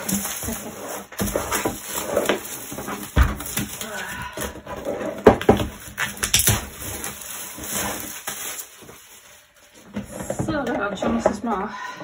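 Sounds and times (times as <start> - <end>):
plastic shrink-wrap crackling: 0.0 - 4.5, 5.2 - 10.2.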